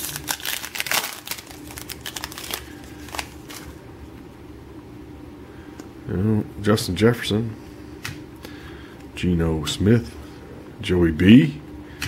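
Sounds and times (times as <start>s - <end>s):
card pack wrapper crinkling: 0.0s - 3.8s
cards being handled: 0.0s - 3.8s.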